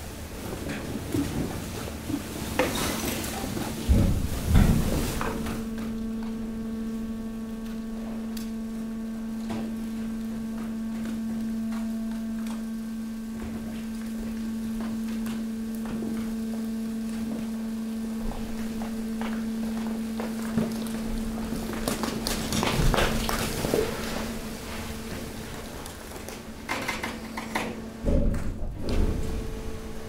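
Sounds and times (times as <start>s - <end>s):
hydraulic compactor hum: 0.0s - 30.0s
trash knocking and scraping: 0.6s - 6.0s, 20.3s - 26.3s.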